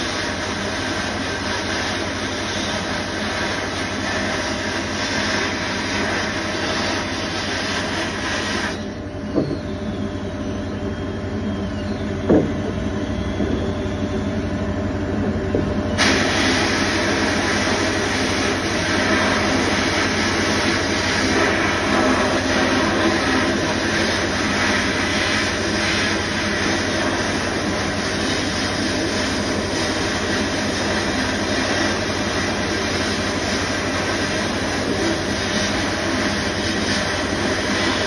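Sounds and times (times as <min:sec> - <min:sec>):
sandblast gun hissing: 0:00.0 - 0:09.0, 0:16.0 - 0:38.0
short knocks: 0:12.2 - 0:12.6.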